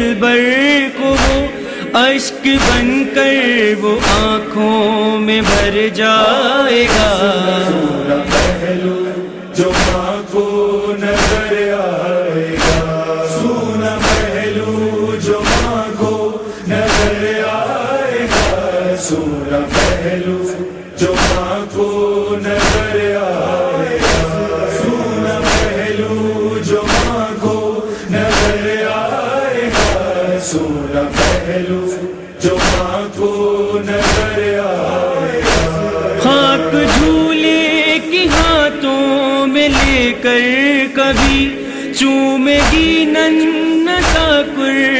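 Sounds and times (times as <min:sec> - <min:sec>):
voices chanting mournful melody: 0:00.0 - 0:44.9
steady beat of sharp strikes: 0:01.1 - 0:01.5, 0:02.6 - 0:03.0, 0:04.0 - 0:04.5, 0:05.4 - 0:05.8, 0:08.0 - 0:08.9, 0:09.6 - 0:11.8, 0:12.5 - 0:17.4, 0:18.2 - 0:18.9, 0:19.5 - 0:28.9, 0:29.6 - 0:30.3, 0:31.0 - 0:37.5, 0:38.2 - 0:38.7, 0:39.7 - 0:40.2, 0:41.1 - 0:41.6, 0:42.5 - 0:43.2, 0:44.0 - 0:44.4.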